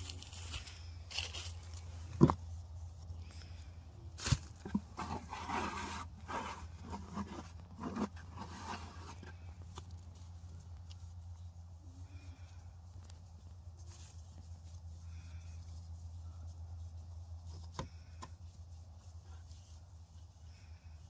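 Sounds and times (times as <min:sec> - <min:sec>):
hands scooping wet mortar: 0:04.2 - 0:09.9
mortar scraping and rustling: 0:04.2 - 0:21.0.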